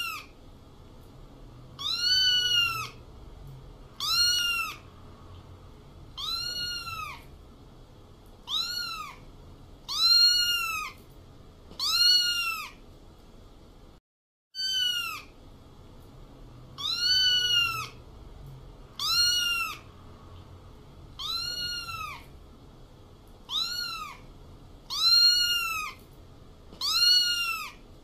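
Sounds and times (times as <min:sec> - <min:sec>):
cat meowing: 0:00.0 - 0:00.3, 0:01.8 - 0:03.0, 0:04.0 - 0:04.9, 0:06.1 - 0:07.3, 0:08.4 - 0:11.0, 0:11.8 - 0:12.8, 0:14.6 - 0:15.4, 0:16.8 - 0:18.0, 0:19.0 - 0:19.9, 0:21.2 - 0:22.3, 0:23.4 - 0:24.3, 0:24.9 - 0:26.0, 0:26.8 - 0:27.8
faint steady background noise: 0:00.0 - 0:28.0.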